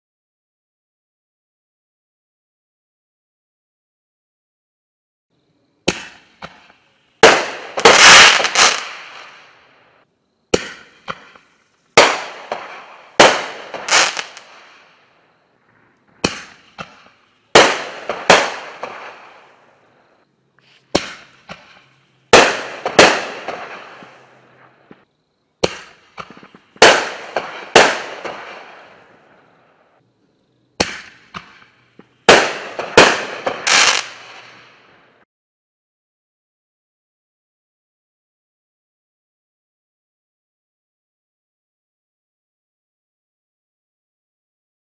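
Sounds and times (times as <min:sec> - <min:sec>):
fireworks exploding: 0:05.8 - 0:30.0, 0:30.8 - 0:35.2.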